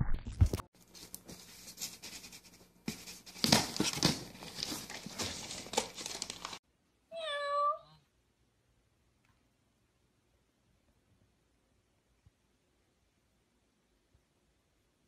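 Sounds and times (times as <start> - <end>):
paper and cardboard crinkling: 0.4 - 6.6.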